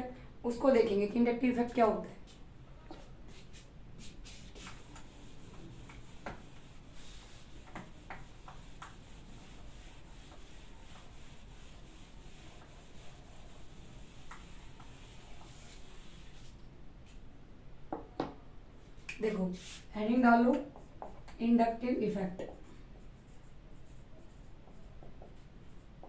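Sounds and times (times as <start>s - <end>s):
eraser rubbing on whiteboard: 2.9s - 16.6s, 19.5s - 19.9s, 22.5s - 26.0s.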